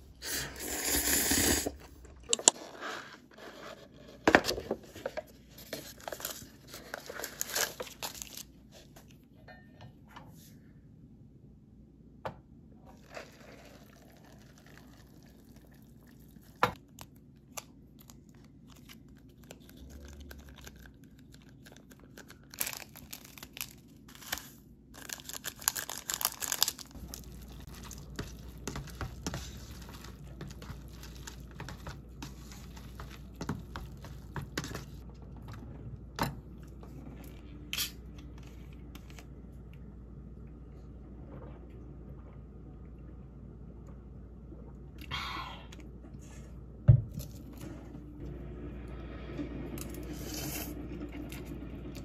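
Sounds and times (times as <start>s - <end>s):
packaging tearing and crinkling: 5.9s - 8.5s, 17.5s - 28.5s
chopsticks stirring noodles in cup: 26.9s - 35.1s.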